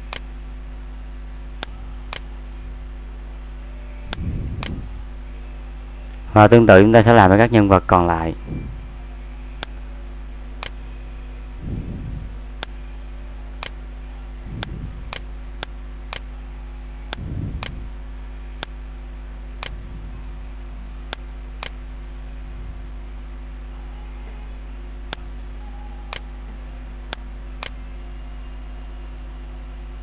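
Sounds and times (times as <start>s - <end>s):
steady low hum: 0.0s - 30.0s
brief low rumbles: 11.4s - 12.5s, 14.4s - 15.4s, 17.1s - 18.0s, 19.6s - 20.9s, 22.2s - 24.5s.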